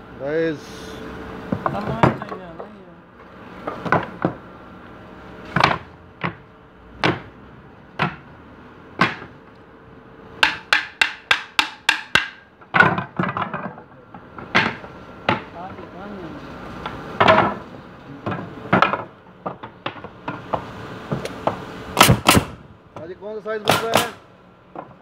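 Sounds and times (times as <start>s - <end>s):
wooden boards knocking: 1.5s - 2.7s, 5.5s - 7.4s, 8.0s - 8.3s, 9.0s - 9.4s, 10.4s - 15.6s, 16.9s - 17.6s, 18.2s - 22.6s, 23.7s - 25.0s.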